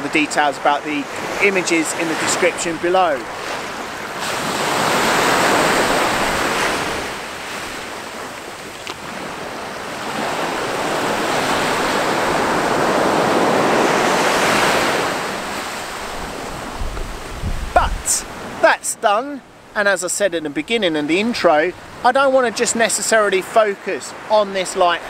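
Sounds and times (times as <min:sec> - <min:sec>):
sea waves breaking on beach: 0:00.0 - 0:25.0.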